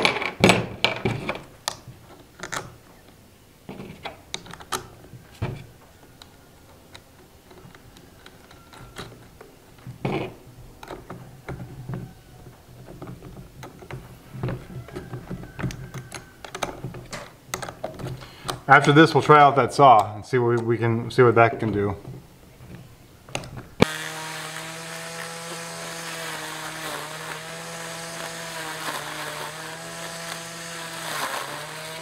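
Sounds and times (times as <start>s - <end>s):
small plastic clicks and knocks: 0.0s - 18.7s.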